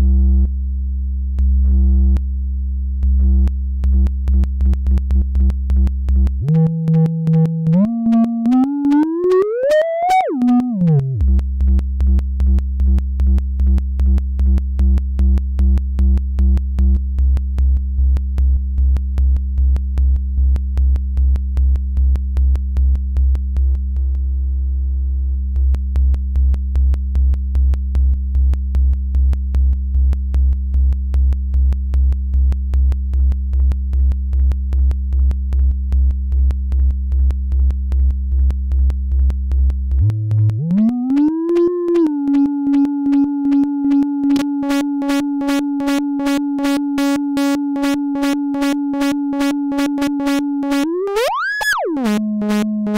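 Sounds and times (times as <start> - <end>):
synthesizer pulsing bass tone: 3.2 - 11.4, 40.0 - 52.9
synthesizer tone gliding upward: 6.4 - 11.2, 40.0 - 52.9.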